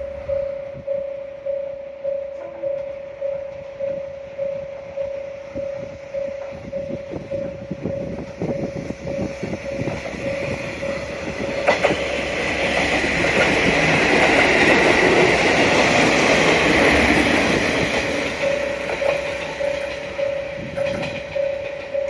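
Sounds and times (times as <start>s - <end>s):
warning bell dinging: 0.0s - 11.9s, 17.8s - 22.0s
diesel train rumbling past: 0.0s - 22.0s
wheels clicking on rail joints: 2.3s - 22.0s.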